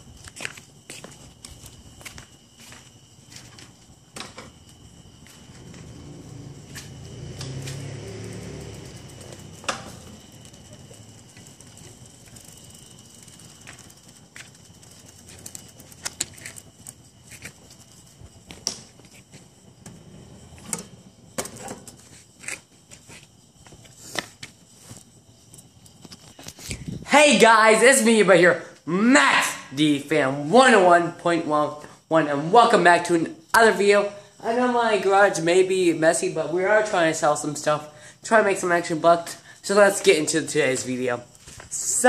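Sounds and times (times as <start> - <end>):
bicycle rumbling on carpet: 0.0 - 27.2, 39.5 - 42.0.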